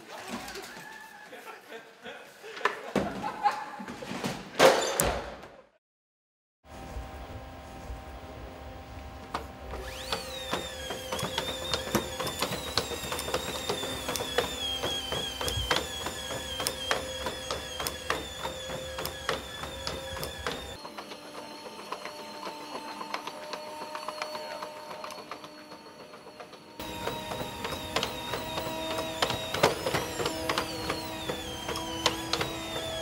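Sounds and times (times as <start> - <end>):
robot power unit whining: 7.0 - 33.0.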